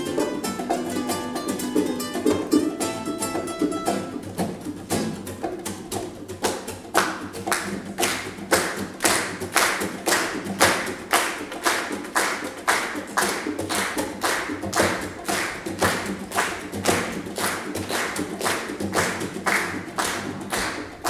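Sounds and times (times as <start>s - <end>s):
soft acoustic guitar: 0.0s - 11.1s
hands clapping a beat: 0.0s - 21.0s.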